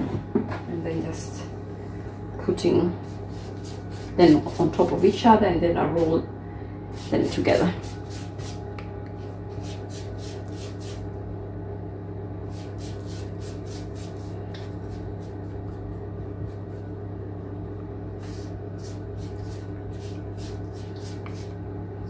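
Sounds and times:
appliance electrical hum: 0.0s - 22.0s
pastry brush swishing: 3.0s - 4.8s, 18.2s - 21.5s.

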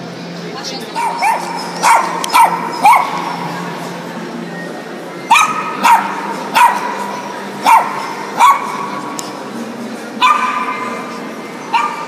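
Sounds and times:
dog barking: 1.0s - 3.2s, 5.3s - 7.0s, 7.6s - 8.9s, 10.2s - 10.9s, 11.7s - 12.0s.

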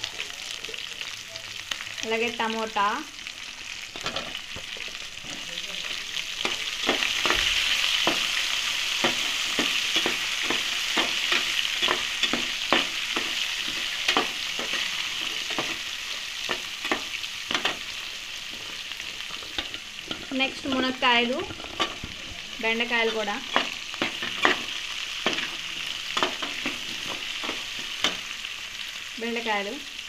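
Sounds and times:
vegetables sizzling in hot oil: 0.0s - 30.0s
metal spatula scraping pot: 6.4s - 28.4s.

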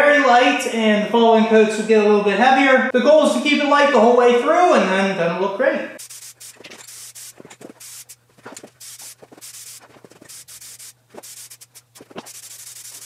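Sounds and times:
aerosol spray can hissing: 6.0s - 13.0s.

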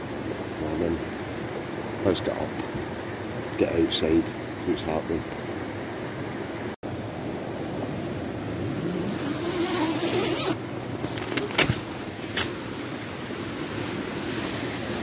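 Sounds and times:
river rushing: 5.4s - 15.0s
tent fabric rustling: 8.6s - 12.6s, 13.8s - 15.0s.

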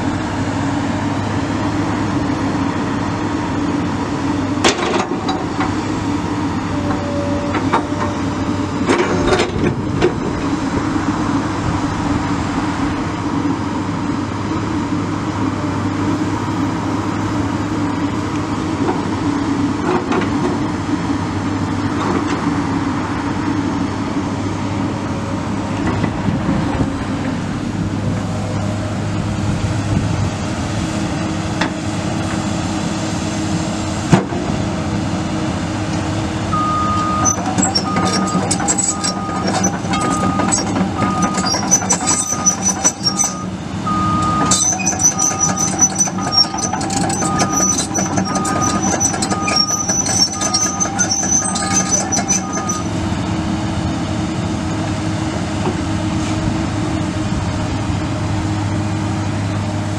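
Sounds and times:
excavator diesel engine running: 0.0s - 59.9s
track clanking: 4.6s - 6.0s, 6.6s - 14.0s, 35.8s - 53.3s
travel alarm beeping: 36.6s - 41.4s, 42.1s - 44.6s
high-pitched track squeaking: 36.9s - 52.9s.

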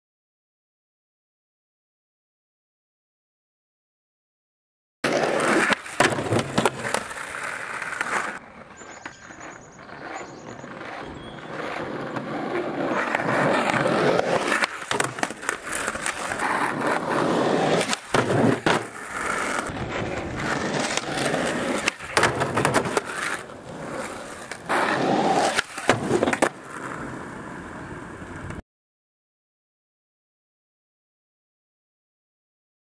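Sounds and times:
skateboard tail pops: 5.0s - 8.4s, 13.1s - 17.0s, 17.6s - 23.5s, 24.3s - 26.9s
skateboard clacking on landing: 5.0s - 9.4s, 13.0s - 17.0s, 17.6s - 26.9s
skateboard trucks grinding on wood: 5.0s - 28.4s
skateboard wheels rolling on asphalt: 5.0s - 28.6s.

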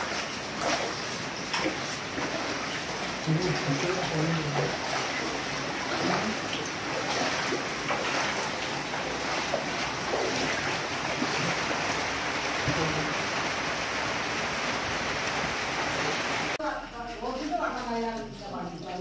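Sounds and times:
water sloshing around wading feet: 0.0s - 13.2s.

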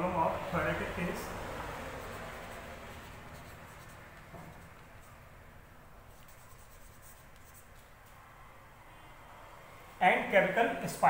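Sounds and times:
low room hum: 0.0s - 11.0s
marker writing on whiteboard: 1.7s - 5.4s, 6.0s - 8.2s.

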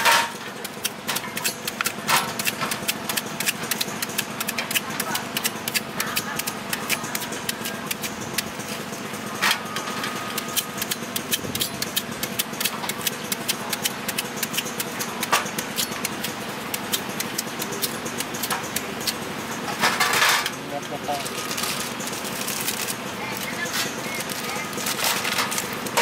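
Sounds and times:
steady engine hum: 0.0s - 26.0s
knife cutting fruit clicks: 10.3s - 19.2s.

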